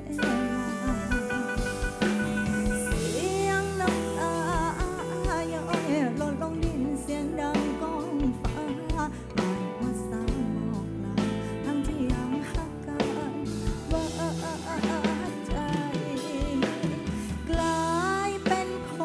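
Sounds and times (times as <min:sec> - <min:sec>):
person singing ornamented melody: 0:00.0 - 0:10.8
live band bass and drums: 0:00.0 - 0:19.0.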